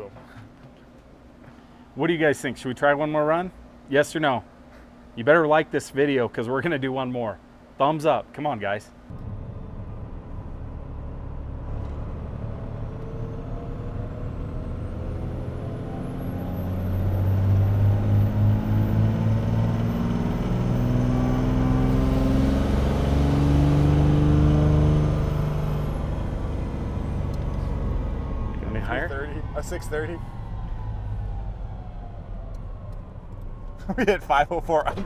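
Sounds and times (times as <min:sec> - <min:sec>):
diesel engine full-throttle pull: 0:09.1 - 0:35.0.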